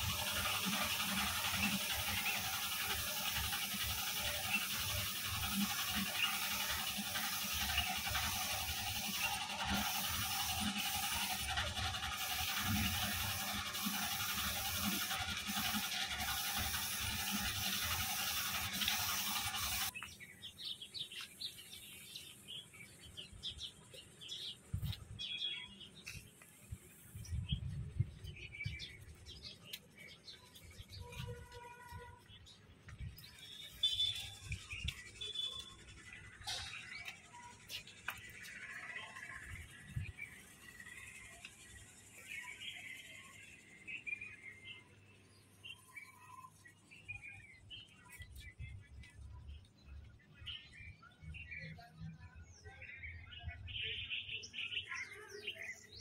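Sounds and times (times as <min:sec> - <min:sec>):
paint spray gun hissing: 0:00.0 - 0:19.9.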